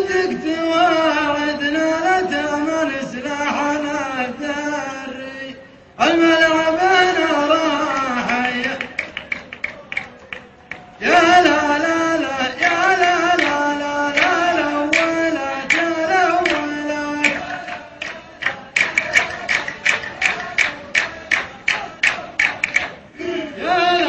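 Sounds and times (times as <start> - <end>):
sharp rhythmic beats: 7.1 - 23.5.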